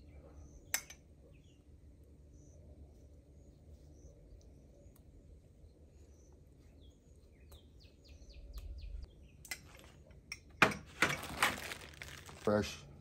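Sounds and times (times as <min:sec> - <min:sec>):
small birds chirping: 0:00.0 - 0:10.3
rustling and crinkling: 0:10.9 - 0:12.8.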